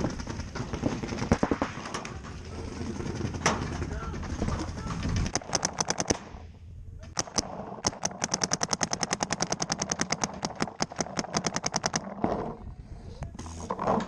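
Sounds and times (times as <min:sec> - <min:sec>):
paintball marker firing: 0:05.3 - 0:06.4, 0:07.1 - 0:12.2.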